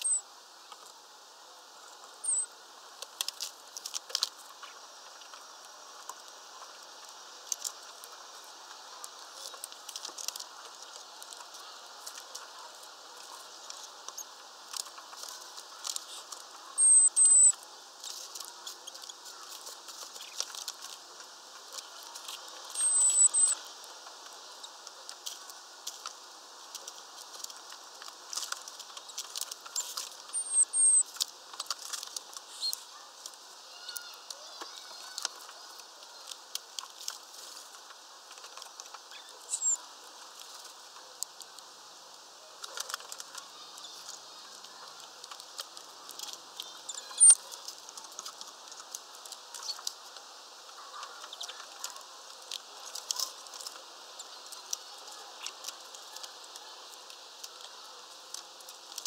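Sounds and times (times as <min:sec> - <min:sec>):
high-pitched bird chirps: 0:00.0 - 0:00.2, 0:02.2 - 0:02.5, 0:16.8 - 0:17.6, 0:22.7 - 0:23.6, 0:29.8 - 0:31.1, 0:32.5 - 0:32.8, 0:39.1 - 0:39.8, 0:46.8 - 0:47.4
birds pecking at feeder: 0:00.0 - 0:01.1, 0:01.8 - 0:59.0.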